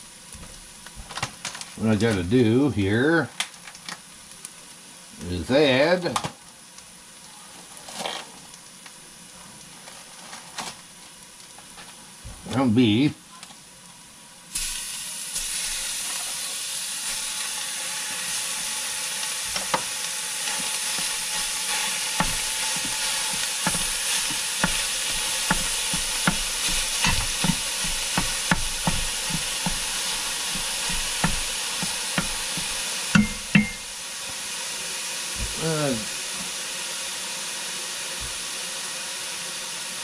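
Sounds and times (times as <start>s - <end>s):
beef sizzling in a pot: 0.0s - 40.0s
spoon scraping and tapping pot: 21.0s - 33.8s
loud knocks on pot: 22.2s - 33.9s.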